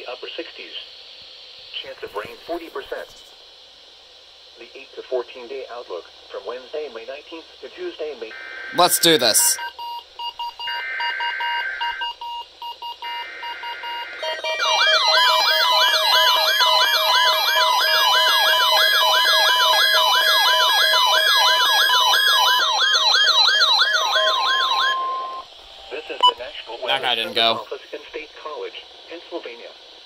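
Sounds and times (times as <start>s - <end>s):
warbling siren alarms: 10.6s - 12.1s, 13.0s - 26.3s.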